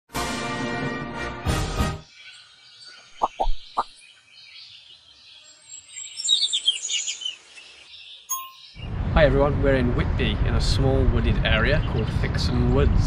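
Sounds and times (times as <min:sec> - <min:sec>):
songbird chirping: 0:02.0 - 0:08.9.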